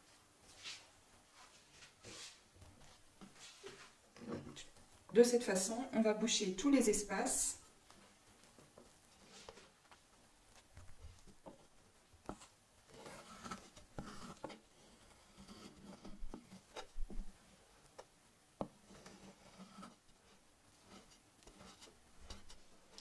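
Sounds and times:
metal scraper smoothing cream: 0:12.9 - 0:16.4.

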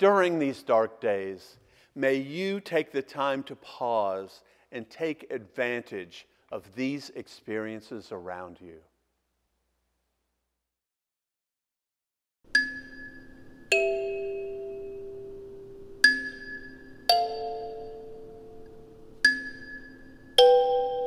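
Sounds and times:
kalimba plucked notes: 0:12.6 - 0:21.0.

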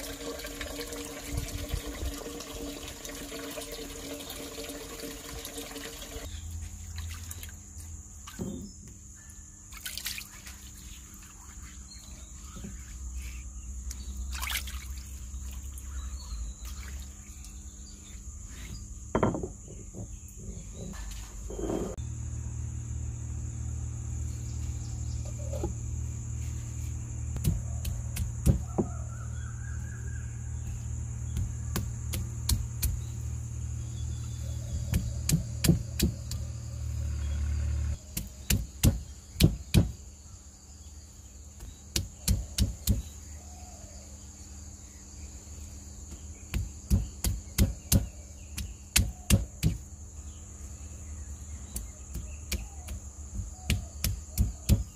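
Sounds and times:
stone roller knocking on grinding stone: 0:19.1 - 0:20.2
low hum: 0:21.0 - 0:28.4.

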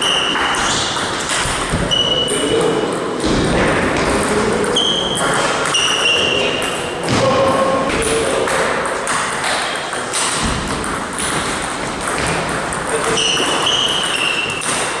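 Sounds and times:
table tennis balls clicking: 0:00.0 - 0:15.0
short high squeaks: 0:01.9 - 0:02.5, 0:04.8 - 0:06.6, 0:13.1 - 0:14.6.

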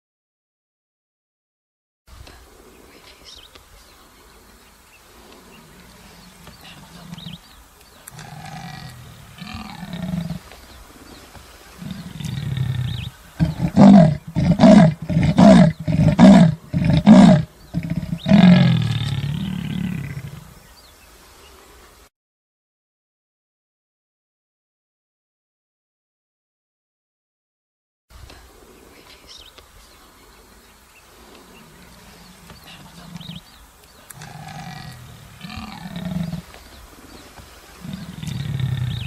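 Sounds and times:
big cat growling: 0:08.1 - 0:10.6, 0:11.8 - 0:20.6, 0:34.1 - 0:36.6, 0:37.8 - 0:39.0
big cat roaring grunts: 0:08.2 - 0:10.4, 0:11.8 - 0:20.6, 0:34.2 - 0:36.5, 0:37.8 - 0:39.0
big cat snarl: 0:11.8 - 0:20.5, 0:34.2 - 0:36.5, 0:37.8 - 0:39.0.

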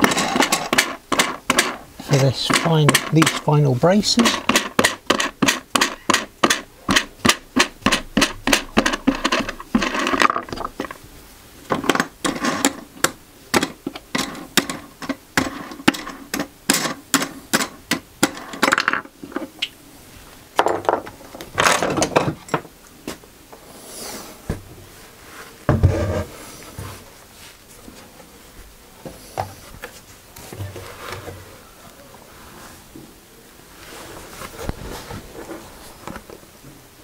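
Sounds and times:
wood scraping: 0:00.0 - 0:11.0.

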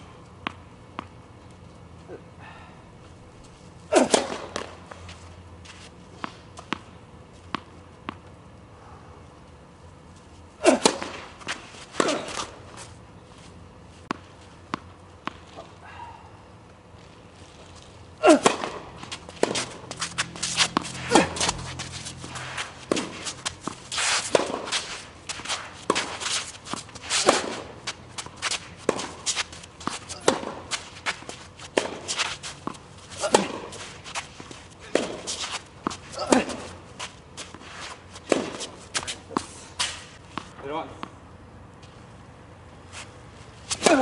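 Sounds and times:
tennis racket striking ball: 0:04.0 - 0:04.7, 0:10.7 - 0:12.6, 0:18.2 - 0:40.5
ball bouncing on court: 0:29.8 - 0:32.0.

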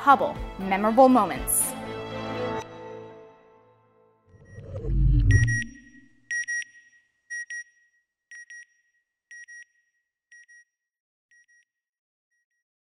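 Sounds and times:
electronic double beep: 0:04.4 - 0:06.1.

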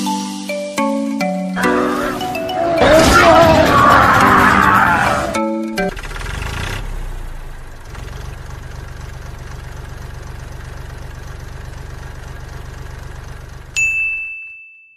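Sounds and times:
engine idling: 0:05.8 - 0:13.8.

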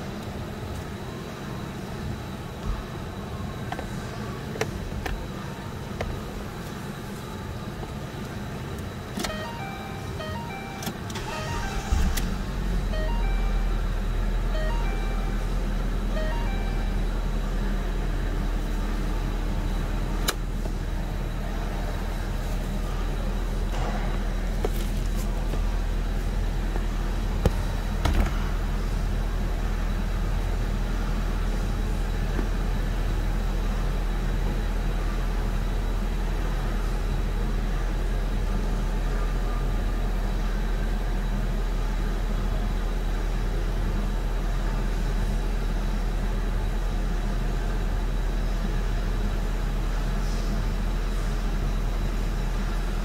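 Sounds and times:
car engine idling: 0:09.3 - 0:33.4.

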